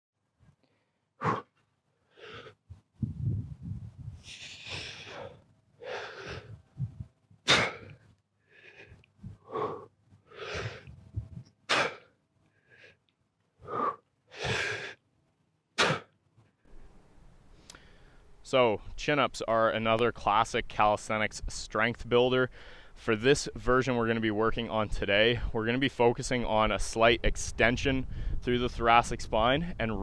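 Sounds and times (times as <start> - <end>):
man breathing forcefully: 0.7 - 2.7, 4.2 - 13.0, 13.6 - 15.0, 15.8 - 16.1, 22.5 - 23.0
low rumbling: 2.7 - 5.4, 6.3 - 7.9, 10.7 - 11.5.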